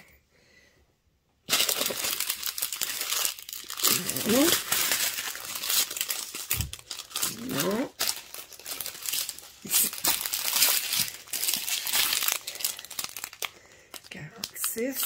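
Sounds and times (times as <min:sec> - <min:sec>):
small plastic bags crinkling: 0:01.4 - 0:15.0.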